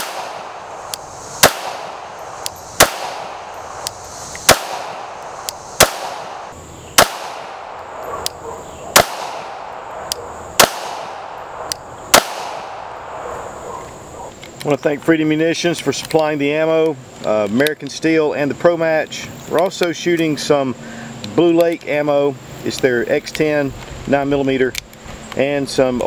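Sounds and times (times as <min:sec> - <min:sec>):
pistol shots: 0:00.0 - 0:13.8
faint sharp cracks: 0:00.0 - 0:14.8.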